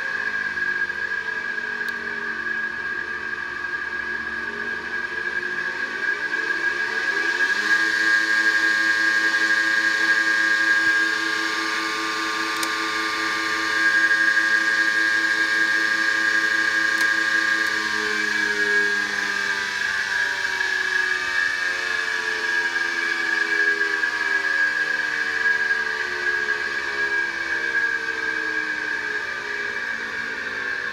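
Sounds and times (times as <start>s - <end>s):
electric motor whining: 0.0s - 30.9s
steady high whine: 0.0s - 30.9s.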